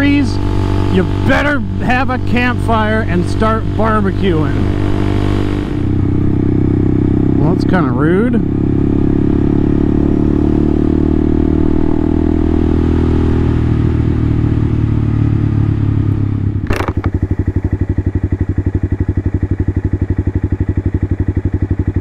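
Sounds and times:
motorcycle engine idling: 0.0 - 10.3, 13.6 - 22.0
sharp click: 16.6 - 17.2.

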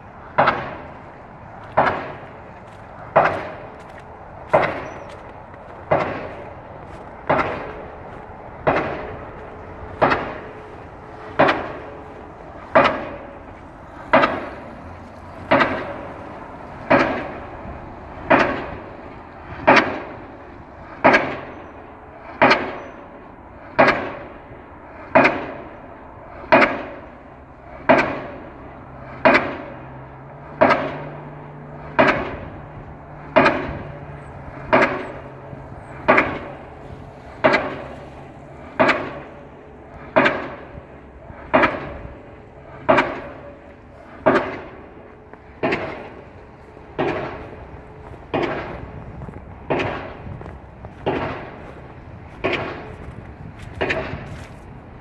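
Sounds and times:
pile hammer bangs: 0.2 - 20.3, 21.0 - 23.1, 23.8 - 24.4, 25.1 - 25.8, 26.4 - 27.2, 27.8 - 29.9, 30.5 - 54.7.

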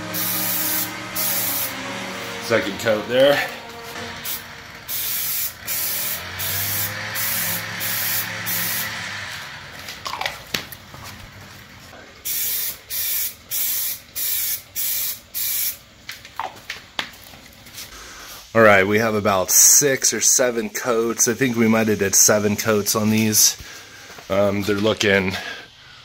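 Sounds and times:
aerosol can spraying: 0.0 - 1.8, 4.2 - 8.9, 12.2 - 15.8.

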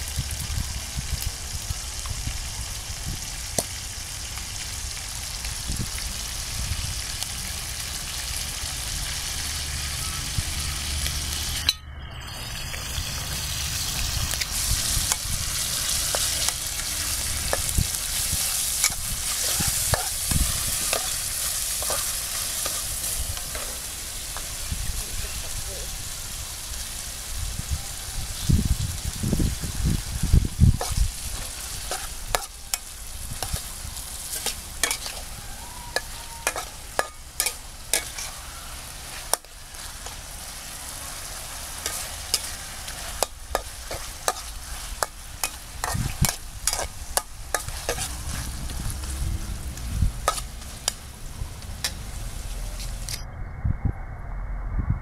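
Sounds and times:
meat sizzling in a wok: 0.0 - 11.7, 12.4 - 53.2
spatula clinking and scraping wok: 11.4 - 24.8, 30.8 - 53.2.

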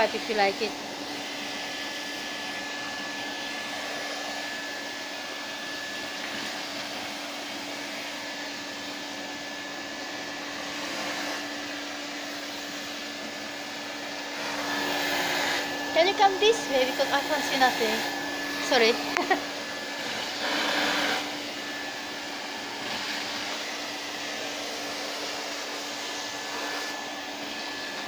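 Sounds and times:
vacuum cleaner running: 0.0 - 28.0.

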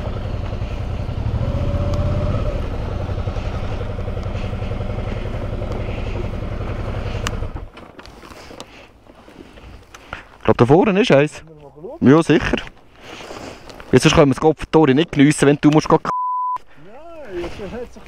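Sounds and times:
motorcycle engine running: 0.0 - 8.5.

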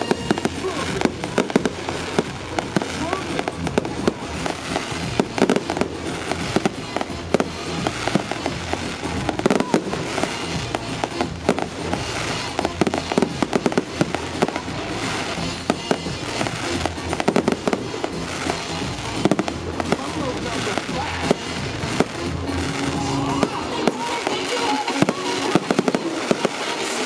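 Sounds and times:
fireworks bangs and crackling: 0.0 - 27.0.

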